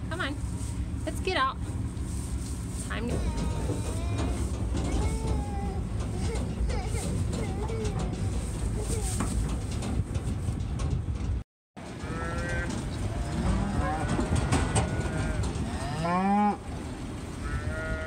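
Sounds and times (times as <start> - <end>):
cattle mooing: 12.0 - 16.7, 17.4 - 18.0.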